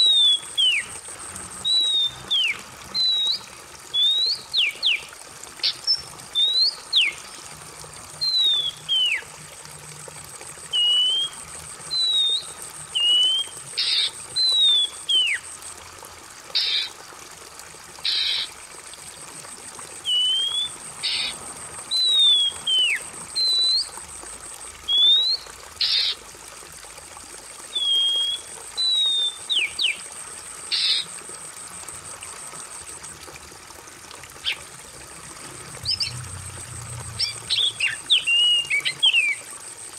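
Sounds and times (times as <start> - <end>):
trickle of running water: 0.0 - 39.9
bird singing whistled notes: 1.6 - 5.0, 8.2 - 9.2, 10.7 - 15.4, 20.1 - 21.3, 21.9 - 23.9, 24.9 - 26.0, 27.7 - 30.0, 37.2 - 39.4.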